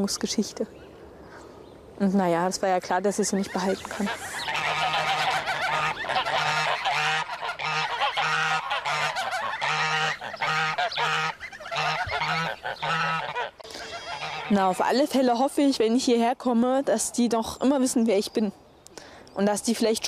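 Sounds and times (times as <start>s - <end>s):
geese honking: 3.3s - 14.8s.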